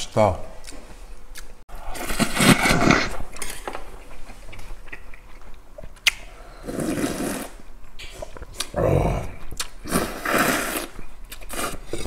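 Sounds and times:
person slurping noodles: 1.8s - 3.2s, 6.5s - 7.6s, 8.2s - 12.0s
slurping broth from a bowl: 6.5s - 8.4s, 9.8s - 12.0s.

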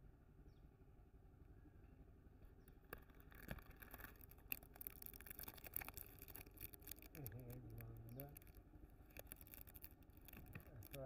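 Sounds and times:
plastic wrapper crinkling: 2.7s - 11.0s.

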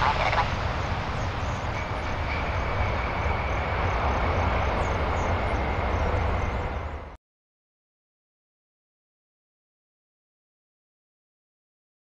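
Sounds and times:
jet engines rumbling: 0.0s - 7.2s.

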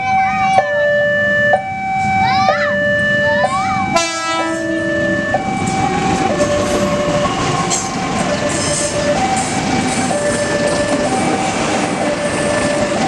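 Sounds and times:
level crossing alarm two-tone: 0.0s - 13.0s
locomotive horn: 2.8s - 7.5s
train wheels clacking on rails: 5.6s - 13.0s.

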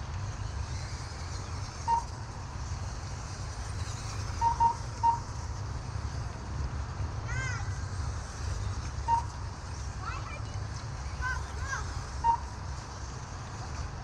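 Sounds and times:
short electronic beeps: 1.7s - 2.3s, 4.4s - 5.4s, 9.0s - 9.8s, 12.1s - 12.6s.

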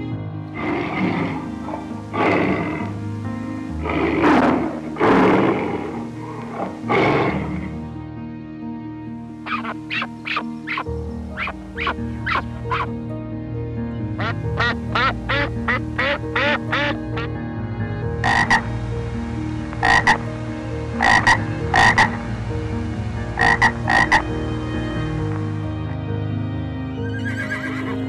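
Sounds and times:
frogs croaking: 0.0s - 8.1s, 9.2s - 13.1s, 13.9s - 26.0s.

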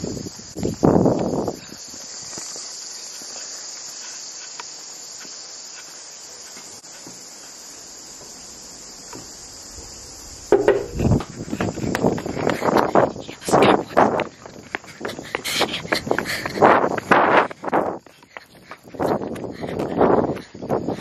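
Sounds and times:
high-pitched insect chorus: 0.0s - 21.0s
knocking on metal screen door: 10.5s - 11.2s.

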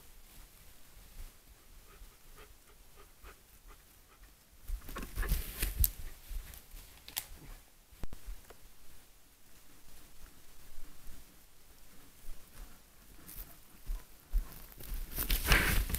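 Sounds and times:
bear steps in dry leaves: 4.9s - 7.4s, 14.5s - 15.9s.

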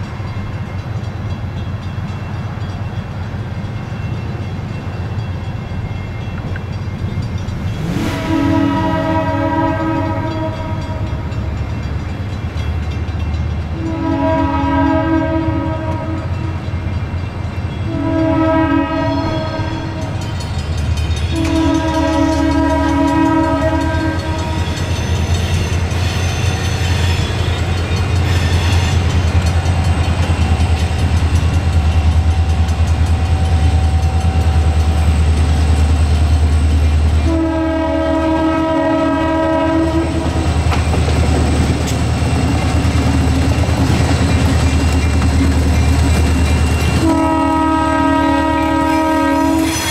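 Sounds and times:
out of tune locomotive horn: 7.7s - 11.7s, 13.6s - 16.9s, 17.8s - 20.4s, 21.2s - 29.5s, 36.8s - 40.7s, 46.7s - 49.9s
locomotive engine rumble: 19.4s - 49.4s.

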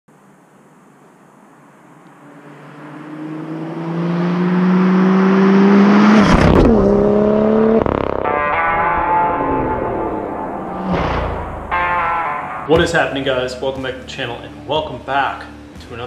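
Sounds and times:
car driving by at speed: 2.1s - 9.2s.

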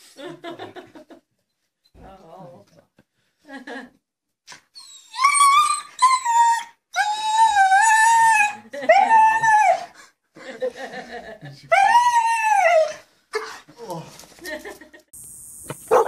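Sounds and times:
dog howling and whining: 4.8s - 9.9s, 11.7s - 13.1s.

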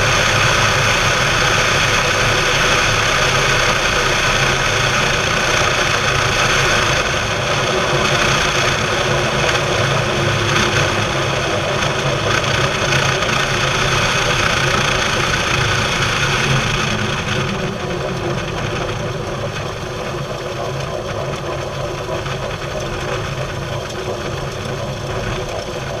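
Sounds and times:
aircraft engine at low power: 0.0s - 26.0s.

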